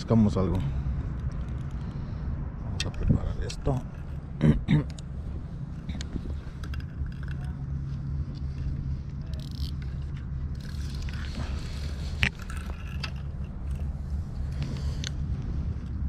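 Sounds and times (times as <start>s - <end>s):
low rumble: 0.0s - 16.0s
fishing tackle scraping and clicking: 1.1s - 2.0s, 5.7s - 16.0s.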